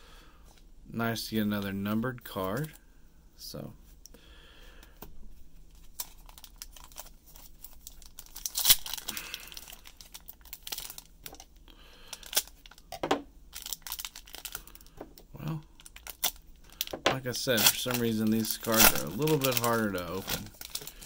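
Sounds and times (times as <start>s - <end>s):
foil wrapper crinkling and tearing: 5.7s - 12.9s, 13.5s - 21.0s.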